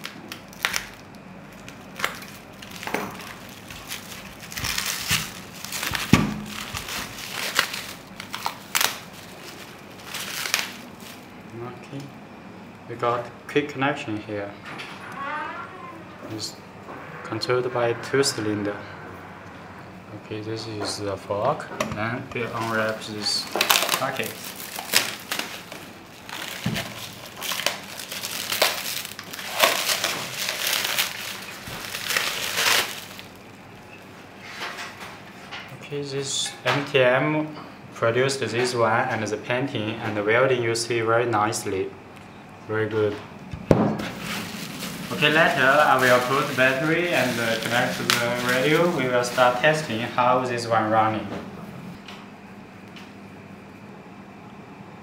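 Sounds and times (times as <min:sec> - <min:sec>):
plastic wrapping crinkling: 0:00.0 - 0:11.6, 0:22.4 - 0:33.9, 0:44.0 - 0:50.2.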